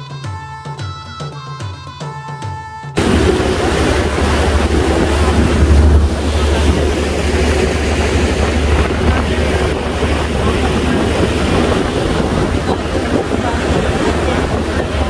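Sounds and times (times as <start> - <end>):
boat engines rumbling: 3.0 - 15.0
water rushing along hull: 3.0 - 15.0
wind buffeting microphone: 3.0 - 15.0.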